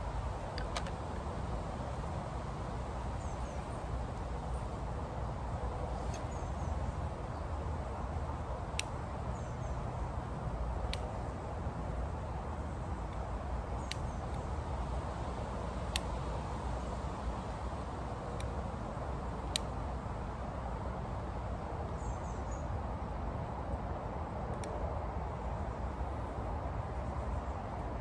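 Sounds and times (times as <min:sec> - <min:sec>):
small birds twittering: 0:02.8 - 0:04.8, 0:05.9 - 0:08.0, 0:08.7 - 0:14.8, 0:21.9 - 0:22.8.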